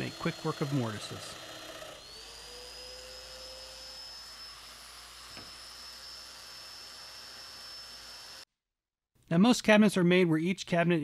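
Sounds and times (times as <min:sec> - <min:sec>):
joiner motor whining: 0:00.0 - 0:08.4.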